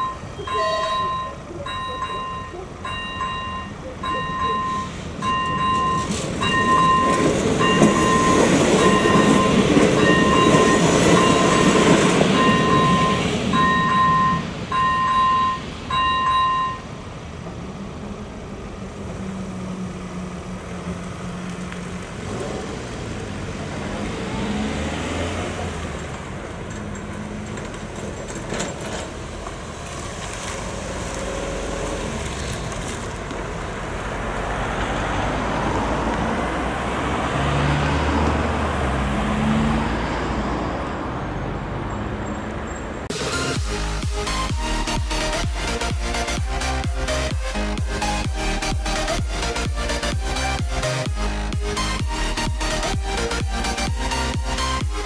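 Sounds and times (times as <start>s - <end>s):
level crossing bell ringing: 0.0s - 16.9s
train rumbling: 0.0s - 41.3s, 43.0s - 55.0s
road vehicles passing: 0.0s - 55.0s.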